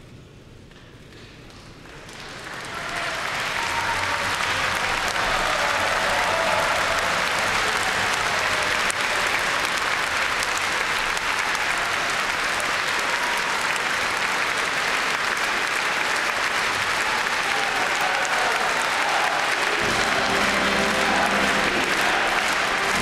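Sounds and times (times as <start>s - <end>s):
crowd applauding: 1.1s - 23.0s.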